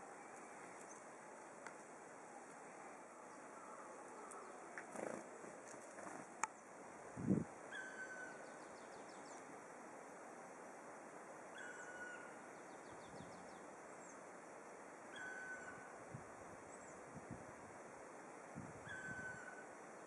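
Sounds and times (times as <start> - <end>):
forest bird calling: 7.7 - 9.5, 11.5 - 14.3, 15.1 - 16.0, 18.8 - 19.7.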